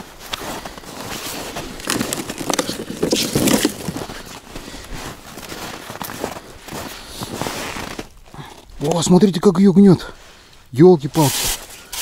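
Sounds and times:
footsteps crunching in snow: 0.0 - 8.4
rummaging through gear in plastic sled: 0.4 - 8.1.

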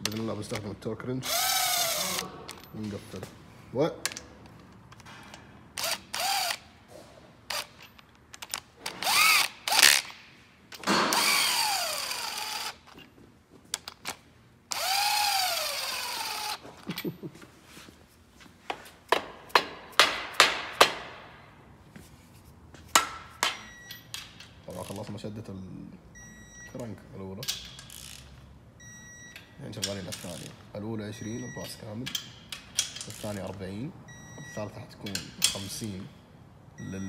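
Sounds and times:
cordless ratchet motor whine: 9.0 - 10.1, 11.2 - 12.8, 14.7 - 16.6.

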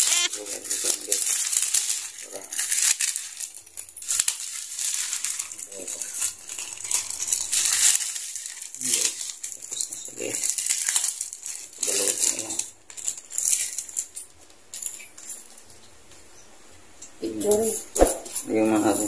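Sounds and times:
plastic packet crinkling: 0.0 - 15.7.

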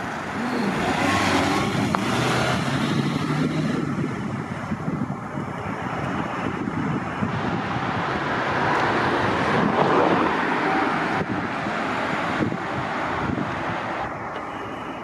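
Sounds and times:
wind buffeting microphone: 0.0 - 14.3
vehicle engine and tyre noise: 0.0 - 15.0.

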